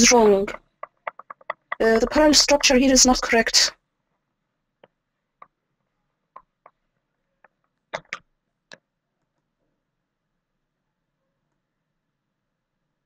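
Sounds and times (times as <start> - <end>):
sharp clicks: 0.1 - 3.3.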